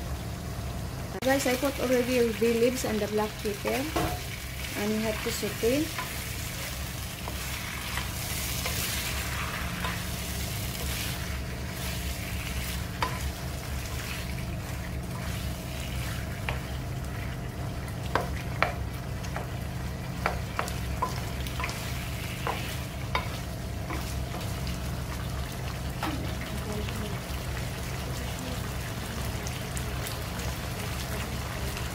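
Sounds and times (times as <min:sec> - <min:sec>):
light frying sizzle: 0:00.0 - 0:31.9
steady low hum: 0:00.0 - 0:31.9
wooden spatula scraping wok: 0:04.6 - 0:16.7.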